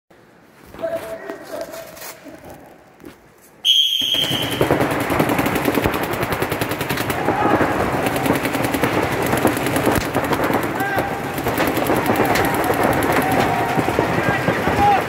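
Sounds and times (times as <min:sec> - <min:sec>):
rapid paintball marker fire: 0:03.7 - 0:15.0.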